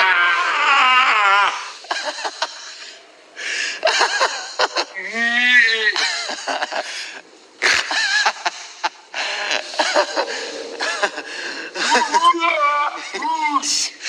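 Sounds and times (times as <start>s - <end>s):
drawn-out vocal cry: 0.0s - 2.0s, 4.8s - 6.1s, 9.2s - 14.0s
wheezy breathy laughter: 6.0s - 12.2s.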